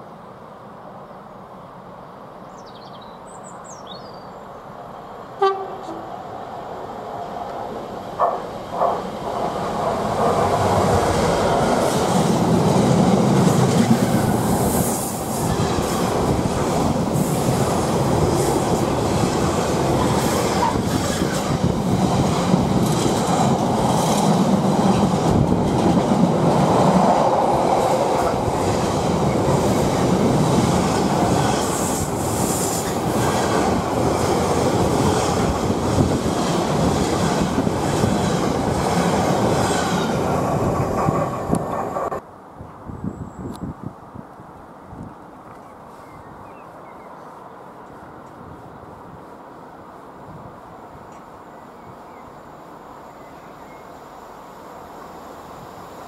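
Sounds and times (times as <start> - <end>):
diesel locomotive passing: 4.5 - 42.2
train wagons rattling: 15.4 - 42.2.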